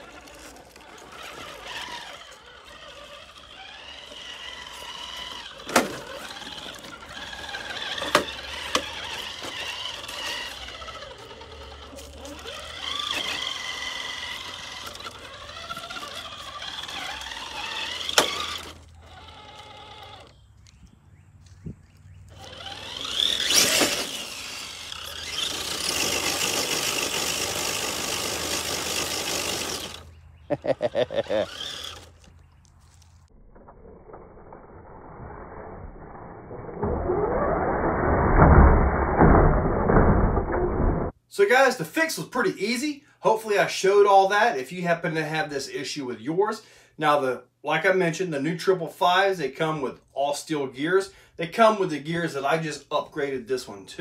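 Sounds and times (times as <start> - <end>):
rc car motor whining: 0.0 - 20.8, 22.2 - 38.4
tyres spinning in sandy dirt: 0.0 - 20.8, 21.4 - 35.6.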